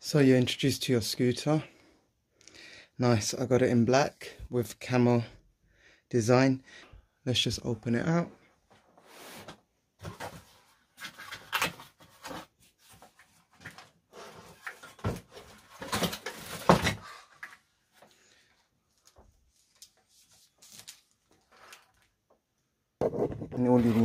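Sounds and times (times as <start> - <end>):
cardboard packaging rustling: 9.3 - 17.1, 18.9 - 22.2.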